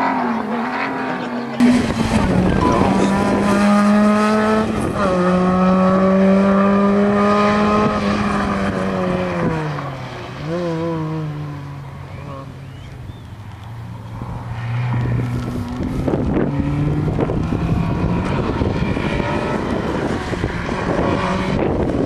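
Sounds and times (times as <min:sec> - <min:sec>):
rally car engine at high revs: 0:00.0 - 0:12.9, 0:14.2 - 0:22.0.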